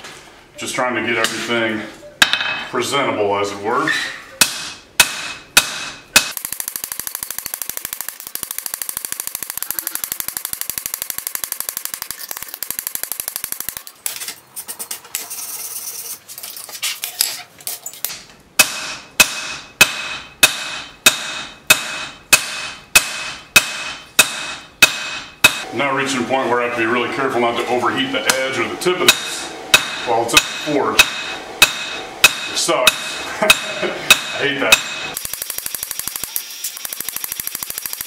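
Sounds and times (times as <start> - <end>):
hammer striking steel on anvil: 2.2 - 2.7, 4.4 - 6.4, 18.6 - 25.7, 29.1 - 35.2
rapid even ticking: 6.3 - 13.9, 35.2 - 38.0
anvil ringing: 29.1 - 35.2.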